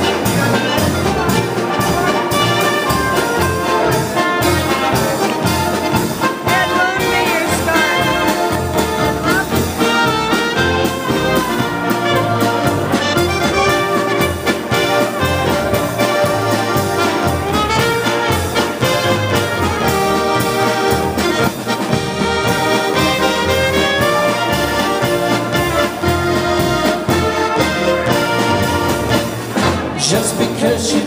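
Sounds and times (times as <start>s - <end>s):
accordion: 0.0s - 31.0s
bass and drum beat: 0.0s - 31.0s
trumpet: 0.0s - 31.0s.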